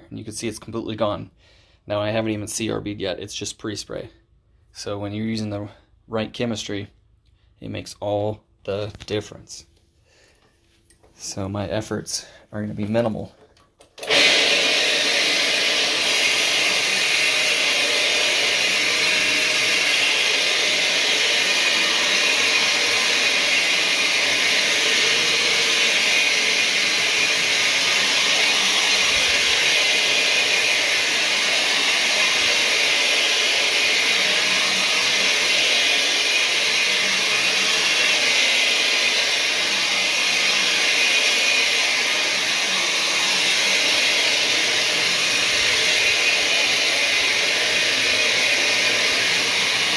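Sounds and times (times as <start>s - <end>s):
carpet machine whirring hiss: 14.0s - 49.9s.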